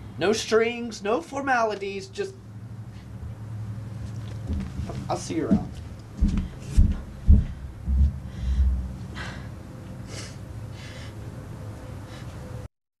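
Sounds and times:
dull low thumps: 4.5 - 9.4.

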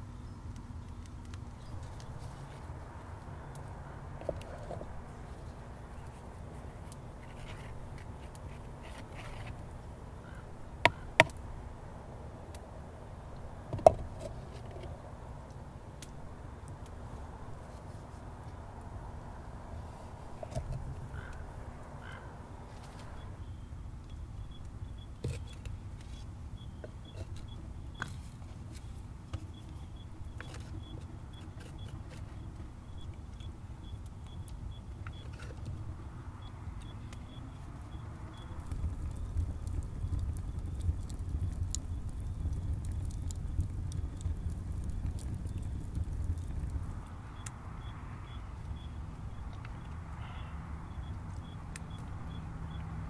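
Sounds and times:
sharp clicks on clay pot: 10.8 - 11.4.

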